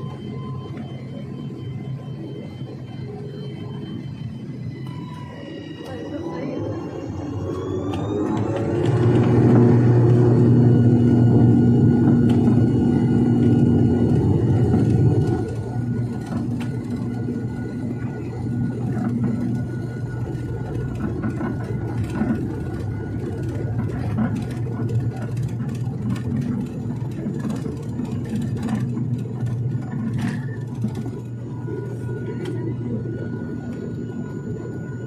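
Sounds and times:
turboprop engines droning: 0:00.0 - 0:35.0.

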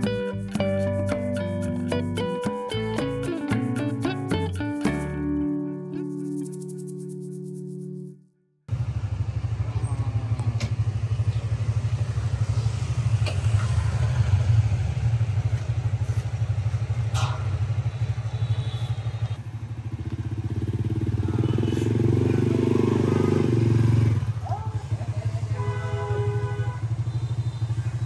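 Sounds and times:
vehicle engine running: 0:08.7 - 0:28.0.

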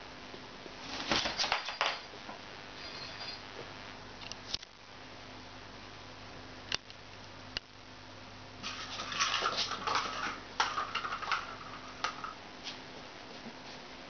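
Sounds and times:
cat claws scrabbling on floor: 0:08.6 - 0:12.3.

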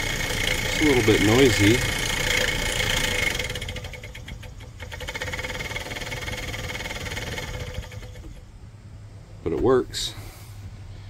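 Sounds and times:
blower motor whining: 0:00.0 - 0:08.5.

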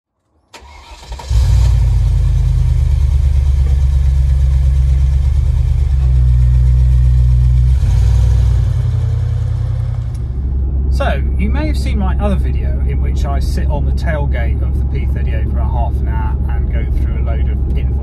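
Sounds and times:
car engine low rumble: 0:00.6 - 0:18.0.

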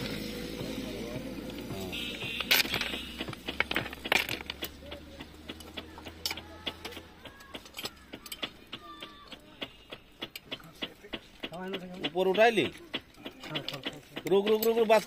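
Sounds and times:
metallic clinks and taps: 0:02.4 - 0:04.8, 0:05.5 - 0:09.3.

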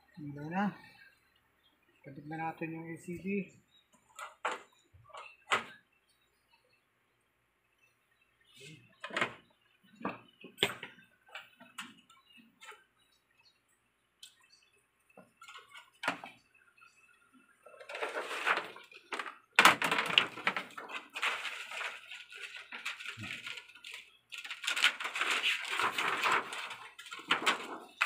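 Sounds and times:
plastic sheet rustling and crackling: 0:17.7 - 0:28.0.

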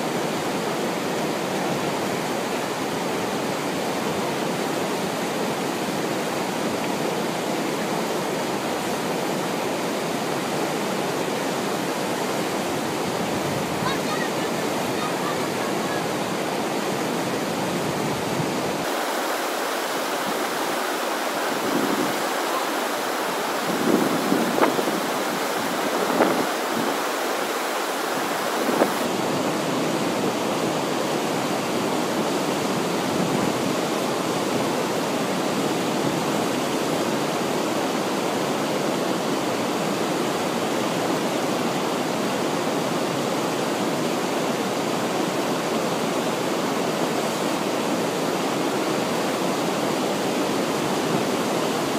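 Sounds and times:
whitewater rushing: 0:00.0 - 0:51.9
water splashes: 0:01.1 - 0:41.0.

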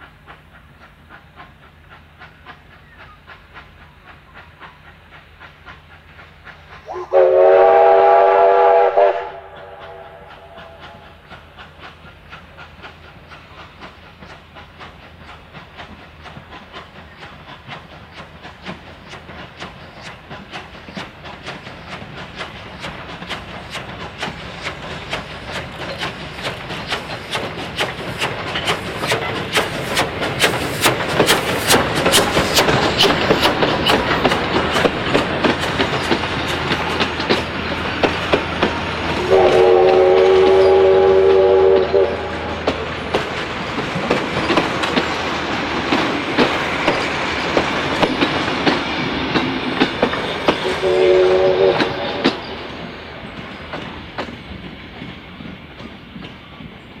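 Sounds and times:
steam train passing: 0:00.0 - 0:57.0
steam whistle blast: 0:06.8 - 0:11.0, 0:39.2 - 0:42.6, 0:50.6 - 0:52.5
wheels clicking over rail joints: 0:09.5 - 0:56.9.

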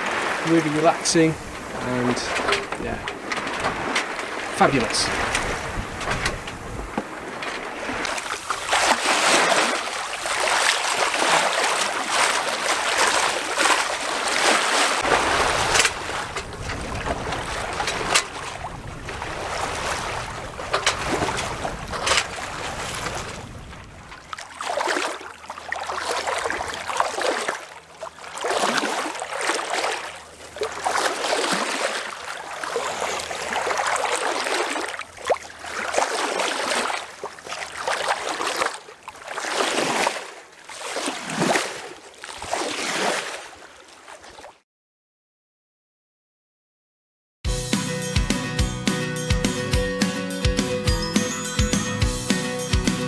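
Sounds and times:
water rushing along a boat hull: 0:00.0 - 0:44.6
wind noise: 0:01.4 - 0:08.1, 0:15.0 - 0:24.2.

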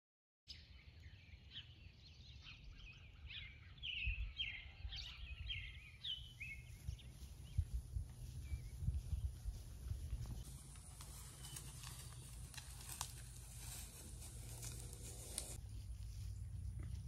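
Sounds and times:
songbirds chirping and singing: 0:00.5 - 0:17.0
faint low rumble: 0:06.7 - 0:17.0.

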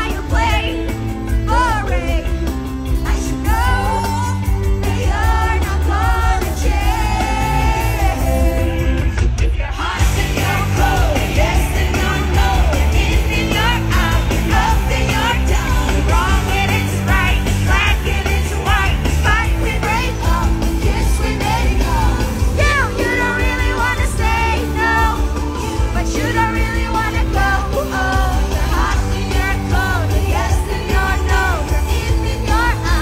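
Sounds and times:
woman singing: 0:00.0 - 0:09.0, 0:09.6 - 0:33.0
pop-rock band playing: 0:00.0 - 0:33.0.

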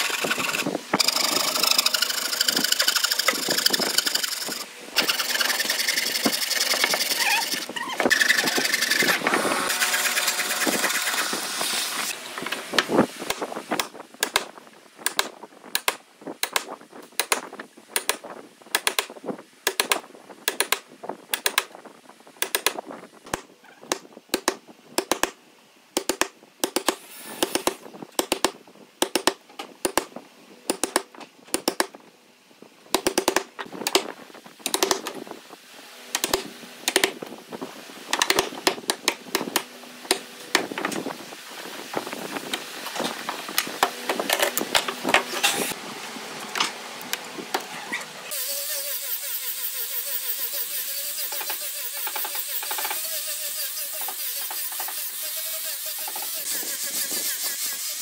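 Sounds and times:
chisel scraping wood: 0:00.0 - 0:11.3
angle grinder sanding wood: 0:00.0 - 0:12.2, 0:48.3 - 0:58.0.

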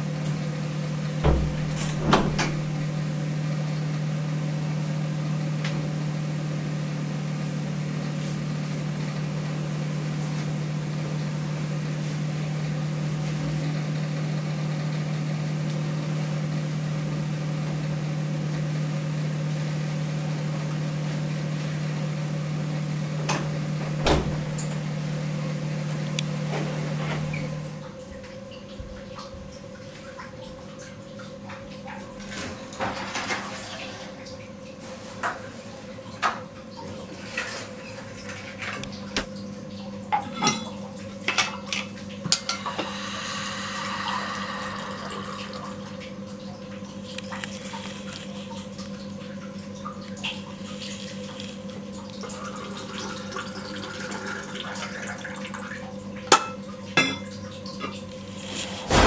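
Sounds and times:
steady low hum: 0:42.0 - 0:49.9, 0:58.1 - 0:59.0.

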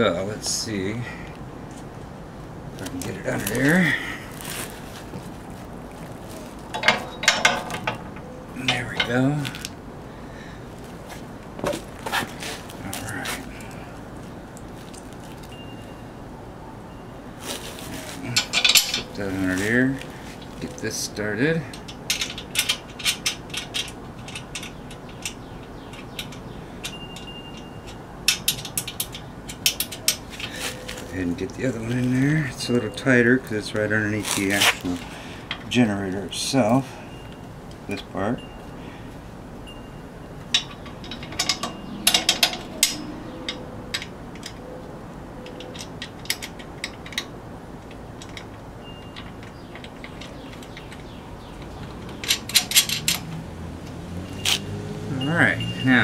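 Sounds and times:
small metal clicks of nut on bolt: 0:06.7 - 0:09.8, 0:21.7 - 0:30.2, 0:40.5 - 0:44.7, 0:45.4 - 0:53.4.

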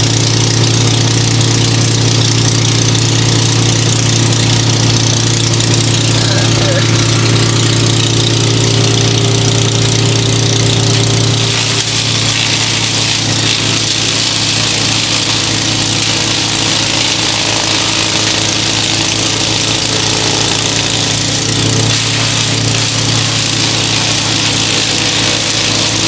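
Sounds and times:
wood chipper engine hum: 0:00.0 - 0:26.0
wood chips hissing from chute: 0:00.0 - 0:26.0.

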